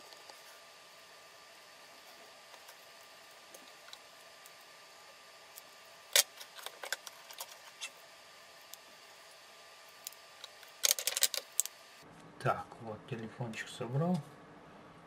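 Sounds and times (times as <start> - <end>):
faint steady hum: 0.0 - 15.0
phone parts clicking: 10.4 - 11.7.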